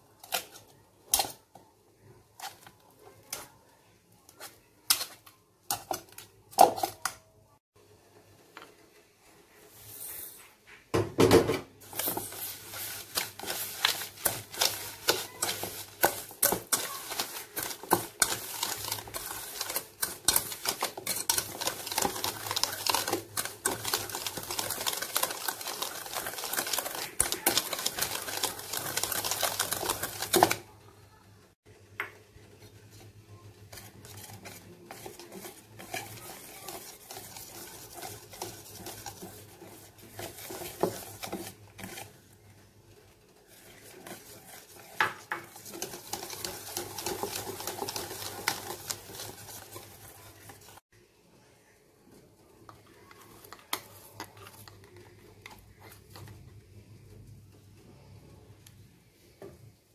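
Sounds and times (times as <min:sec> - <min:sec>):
whisk rattling in metal bowl: 0:11.2 - 0:30.7, 0:33.7 - 0:42.4, 0:43.0 - 0:50.8.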